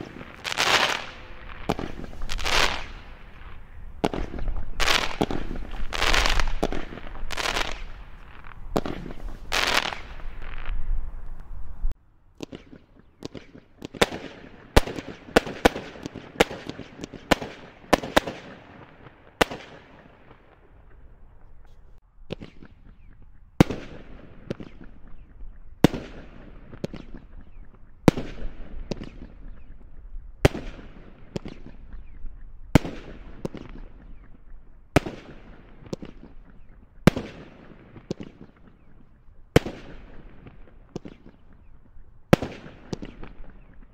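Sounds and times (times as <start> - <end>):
firework cracks and bangs: 0.0 - 10.9
single sharp firework reports: 0.0 - 11.5
fireworks bursting: 0.0 - 43.9.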